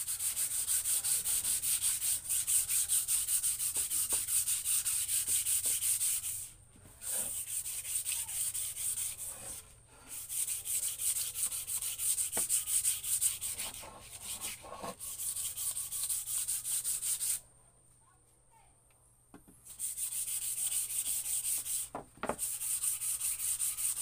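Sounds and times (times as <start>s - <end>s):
sandpaper rubbing on wood: 0.0s - 17.4s, 19.7s - 24.0s.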